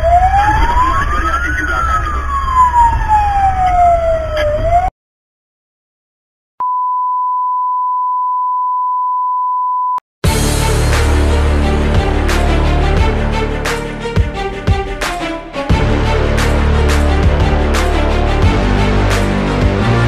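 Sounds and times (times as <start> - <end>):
fire engine siren wailing: 0.0 - 4.9
music: 10.2 - 20.0.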